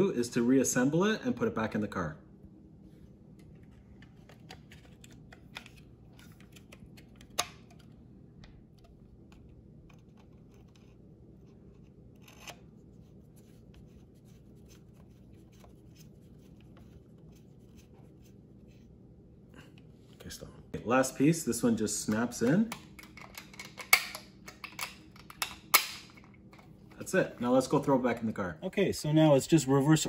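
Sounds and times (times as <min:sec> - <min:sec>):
plastic housing clicks and scrapes: 0:08.8 - 0:12.7
screwdriver turning tiny screw: 0:12.2 - 0:12.6.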